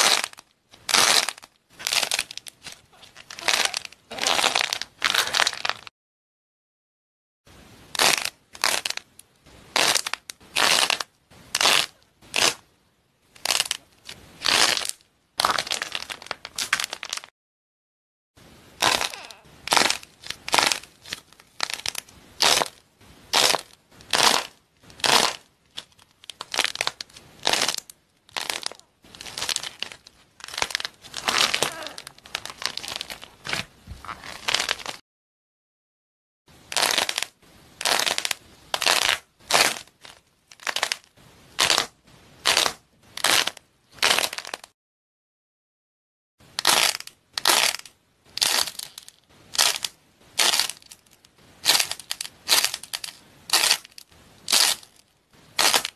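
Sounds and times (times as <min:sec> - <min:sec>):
hands crumbling dry foam: 0:00.0 - 0:05.9, 0:18.8 - 0:35.0, 0:37.8 - 0:40.0, 0:41.6 - 0:44.6, 0:46.6 - 0:55.0, 0:55.6 - 0:55.9.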